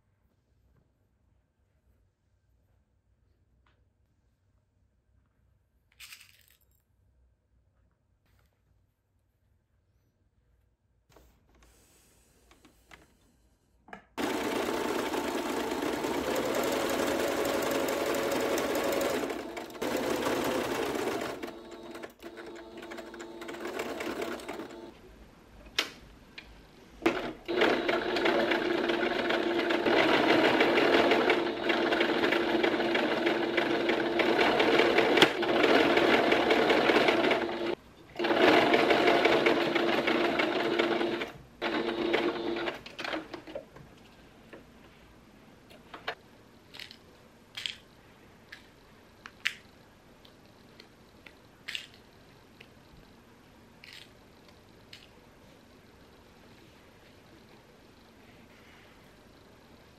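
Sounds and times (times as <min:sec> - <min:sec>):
sewing machine stitching: 0:14.2 - 0:24.9, 0:27.0 - 0:43.5.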